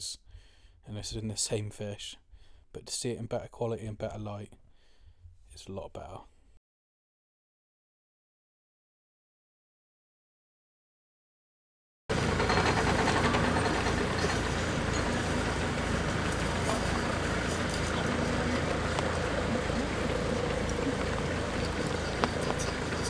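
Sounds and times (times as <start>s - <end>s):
diesel engine running slowly: 12.1s - 23.0s.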